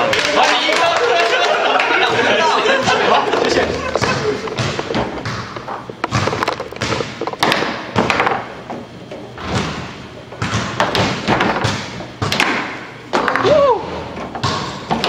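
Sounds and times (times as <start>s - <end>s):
foosball ball knocking: 2.1s - 15.0s
foosball rods clacking: 2.2s - 15.0s.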